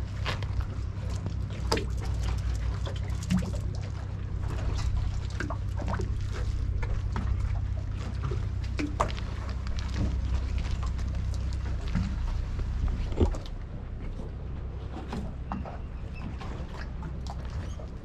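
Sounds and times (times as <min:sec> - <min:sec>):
small water splashes: 0:00.0 - 0:13.6
steady low hum: 0:00.0 - 0:18.0
water lapping against hull: 0:00.0 - 0:18.0.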